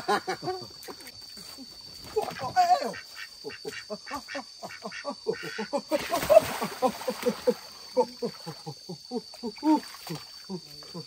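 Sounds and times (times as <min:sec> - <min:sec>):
water splash: 0:06.0 - 0:08.0.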